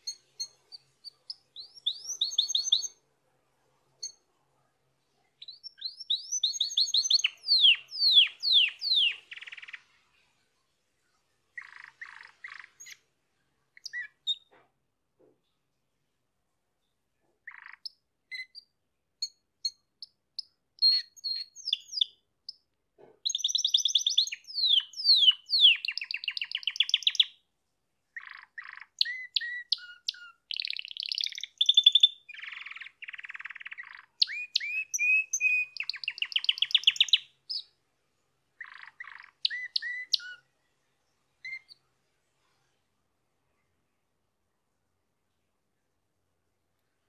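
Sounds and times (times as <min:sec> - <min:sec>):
canary singing: 0:00.0 - 0:03.0, 0:04.0 - 0:04.2, 0:05.4 - 0:10.0, 0:11.6 - 0:13.0, 0:13.7 - 0:14.6, 0:17.4 - 0:27.4, 0:28.1 - 0:37.8, 0:38.6 - 0:40.5, 0:41.4 - 0:41.8.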